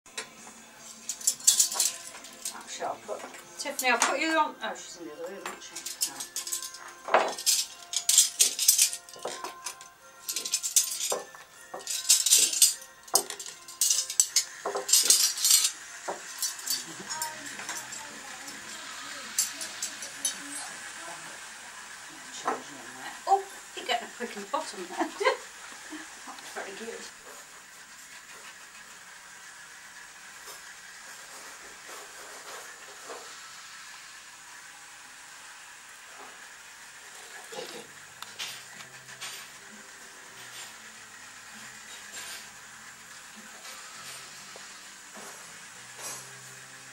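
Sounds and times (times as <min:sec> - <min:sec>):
cutlery clinking: 0:00.1 - 0:02.6, 0:05.4 - 0:20.4
room tone hiss: 0:00.1 - 0:46.9.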